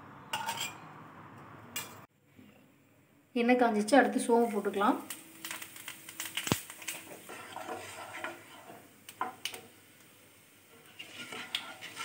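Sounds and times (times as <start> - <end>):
seeds crackling in hot oil: 3.8 - 12.0
wooden spatula stirring: 6.8 - 9.4, 10.8 - 12.0.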